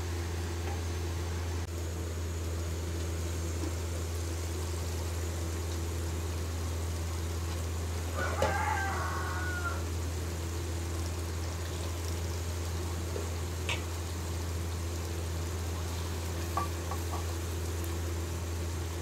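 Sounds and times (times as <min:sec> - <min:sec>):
steady low hum: 0:00.0 - 0:08.2
curry bubbling in a pot: 0:02.5 - 0:19.0.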